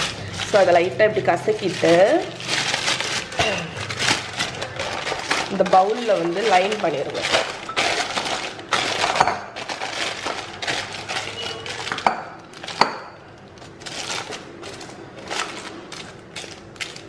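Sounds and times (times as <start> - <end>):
parchment paper crinkling: 0.0 - 17.0.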